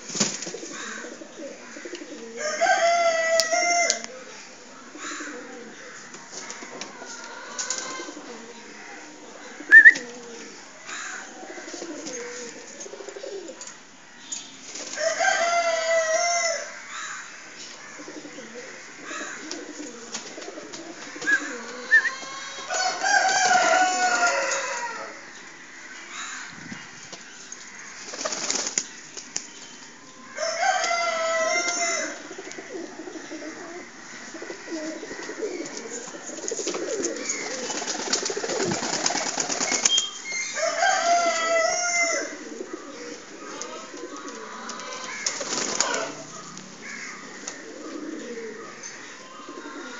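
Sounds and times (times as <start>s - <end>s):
wings flapping: 0.0s - 1.0s, 28.0s - 29.5s, 35.2s - 40.2s, 44.0s - 46.5s
pigeons cooing: 0.0s - 14.0s, 14.9s - 26.9s, 30.1s - 49.9s
rooster crowing: 2.3s - 4.2s, 15.0s - 17.0s, 21.3s - 25.3s, 30.3s - 32.3s, 40.2s - 42.8s, 43.7s - 47.4s.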